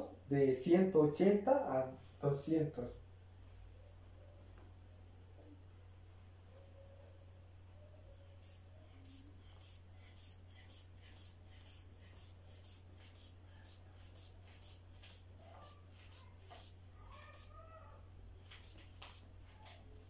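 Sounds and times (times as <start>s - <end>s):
low steady hum: 0.0s - 20.0s
inflation bulb air puffs: 8.4s - 14.8s.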